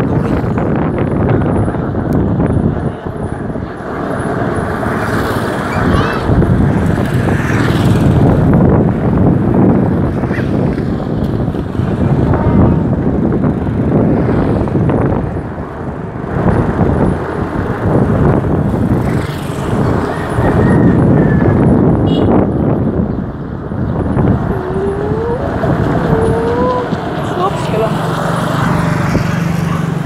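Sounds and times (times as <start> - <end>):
loud rushing noise: 0.0 - 30.0
vehicle engine and road noise: 0.0 - 30.0.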